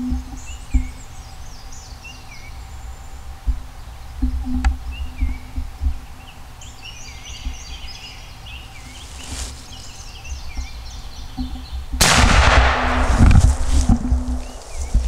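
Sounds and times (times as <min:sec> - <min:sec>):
songbirds chirping: 0:00.0 - 0:15.0
loud rustling: 0:08.8 - 0:10.0, 0:12.0 - 0:15.0
low rumble: 0:12.0 - 0:15.0
shotgun blast: 0:12.0 - 0:15.0.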